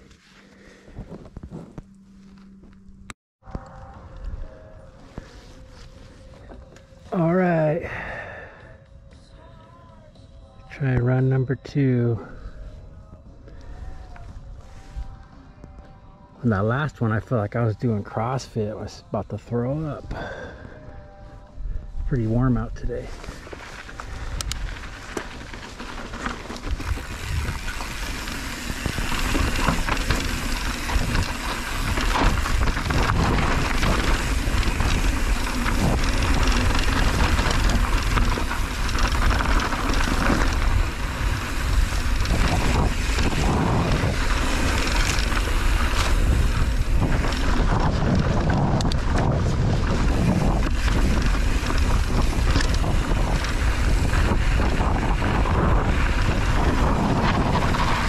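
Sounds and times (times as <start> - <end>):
wind rush on microphone: 19.9 - 58.0
tyres crunching over dirt: 22.3 - 58.0.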